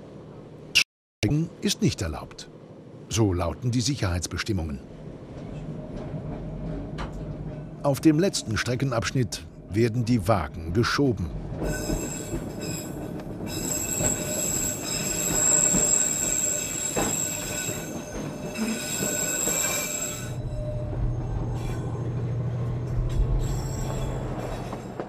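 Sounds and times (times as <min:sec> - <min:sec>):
train wheels squealing: 0:11.6 - 0:25.0.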